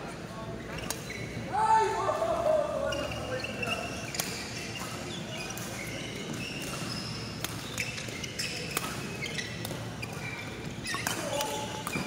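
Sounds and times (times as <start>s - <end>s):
shoes squeaking on court: 0.6s - 1.5s, 2.8s - 12.0s
racket hitting shuttlecock: 6.6s - 10.2s.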